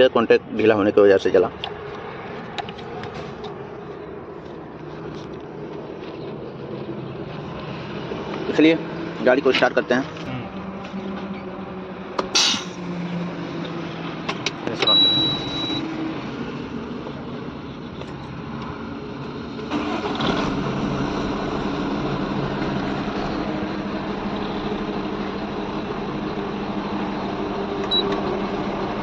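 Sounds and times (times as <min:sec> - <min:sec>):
diesel truck engine idling: 0:14.8 - 0:29.0.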